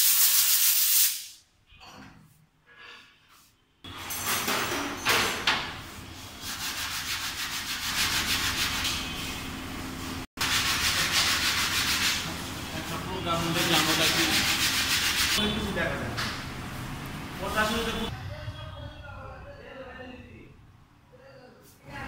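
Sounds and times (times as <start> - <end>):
sandpaper rubbing: 0.0 - 1.3, 6.4 - 9.0, 10.4 - 15.4.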